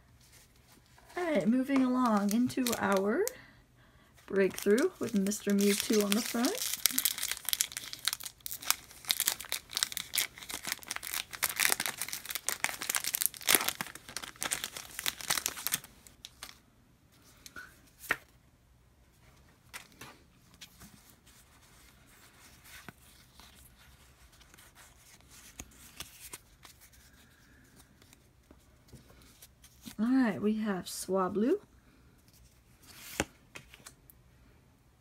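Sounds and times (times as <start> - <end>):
foil wrapper crinkling and tearing: 1.9 - 3.4, 4.3 - 16.6.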